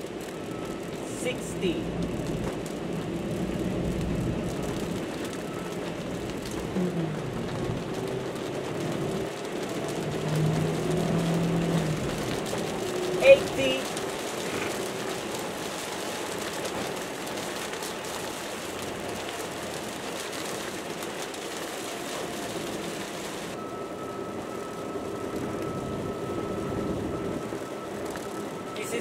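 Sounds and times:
rain hitting windshield: 0.0s - 29.0s
tyres on wet road: 0.0s - 29.0s
faint steady whine: 23.6s - 29.0s.

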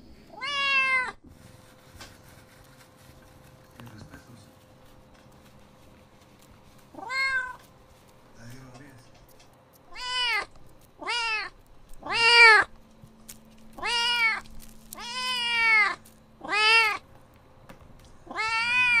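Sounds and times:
kitten meowing: 0.3s - 1.2s, 7.0s - 7.6s, 9.9s - 12.7s, 13.8s - 17.0s, 18.2s - 19.0s.

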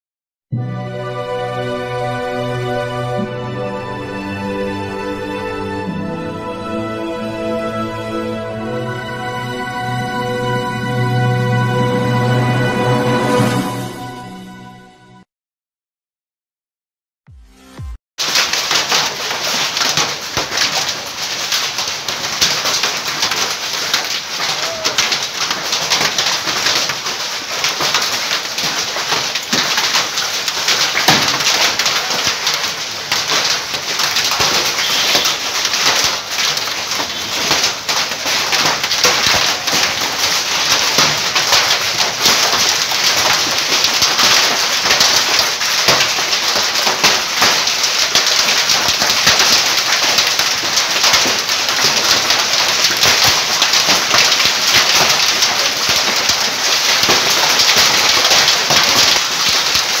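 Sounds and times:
rain pelting down: 0.8s - 13.9s, 18.2s - 60.0s
hailstones clicking on hard surfaces: 18.2s - 60.0s.

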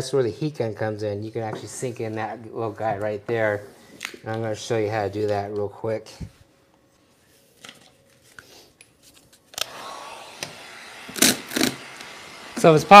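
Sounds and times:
steady low hiss: 0.0s - 7.6s.

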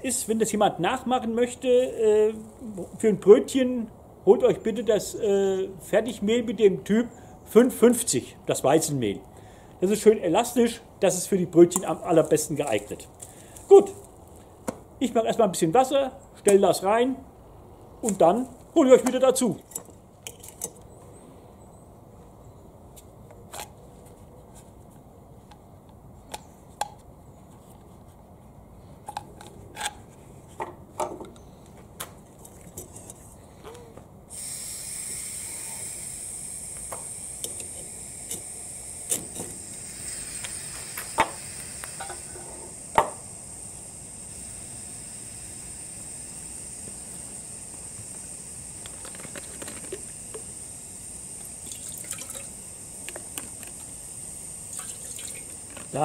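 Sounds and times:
clicks and scrapes of tools: 19.1s - 20.9s
camping stove hissing: 33.6s - 56.0s.

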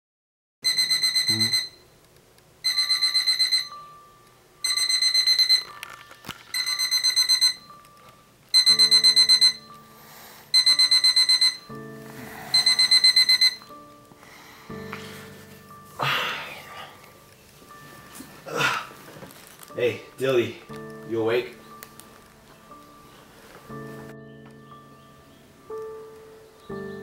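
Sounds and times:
alarm clock beeping: 0.6s - 1.9s, 2.6s - 7.9s, 8.5s - 13.9s
low background music: 0.6s - 27.0s.

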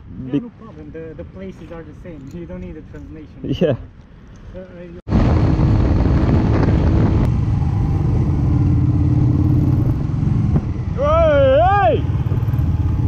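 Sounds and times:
wind rush on microphone: 5.1s - 13.0s.

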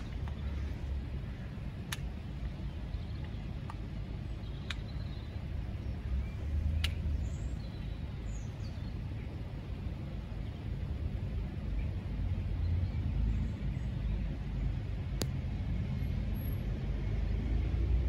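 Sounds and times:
steady low rumble: 0.0s - 18.0s
sharp clicks: 1.8s - 2.5s, 3.2s - 5.2s, 6.7s - 7.1s.

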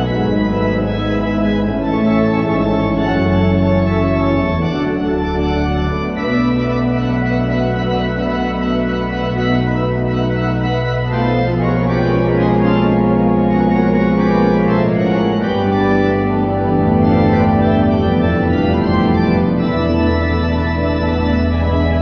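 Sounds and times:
pipe organ chords: 0.0s - 22.0s.

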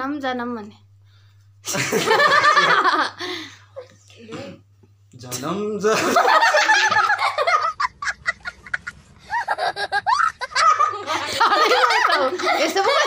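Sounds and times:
man laughing: 1.7s - 3.1s, 5.9s - 13.0s
child laughing: 6.4s - 13.0s.

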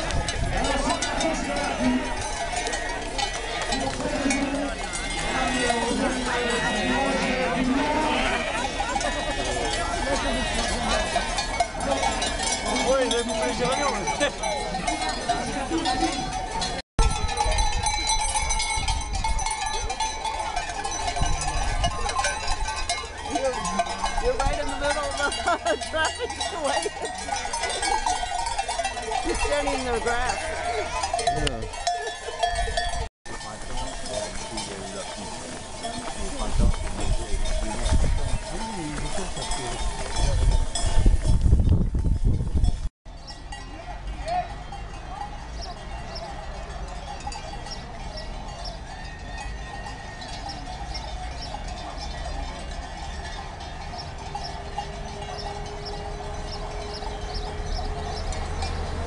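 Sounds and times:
sheep bells clanking: 0.0s - 59.0s
sheep bleating: 0.7s - 12.3s, 30.3s - 31.4s.

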